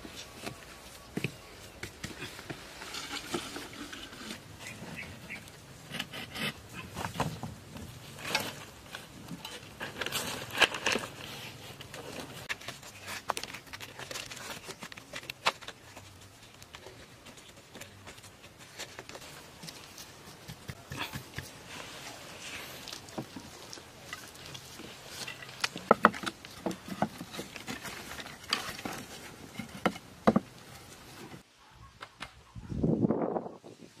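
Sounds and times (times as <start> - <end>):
stones clicking and scraping: 5.5 - 31.0.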